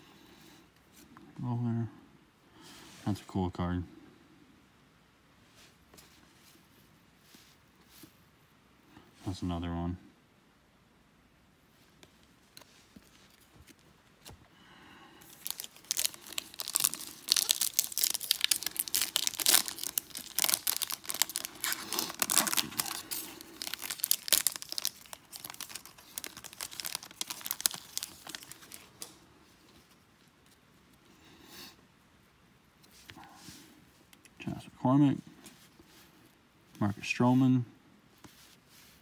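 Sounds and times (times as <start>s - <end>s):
foil wrapper tearing and crinkling: 15.2s - 29.2s.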